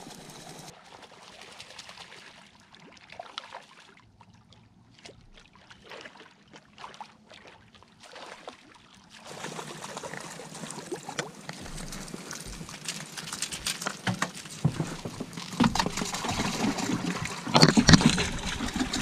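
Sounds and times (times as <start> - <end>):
fish splashing in water: 5.5 - 19.0.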